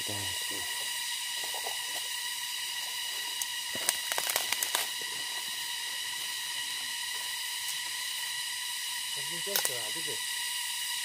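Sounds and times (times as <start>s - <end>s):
steady high-pitched whine: 0.0s - 11.0s
dry bamboo crackling and snapping: 3.4s - 5.1s.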